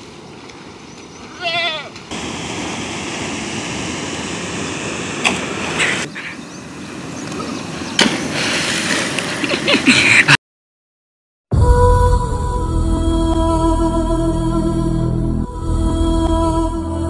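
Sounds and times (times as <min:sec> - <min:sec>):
rushing canal water: 0:00.0 - 0:10.3.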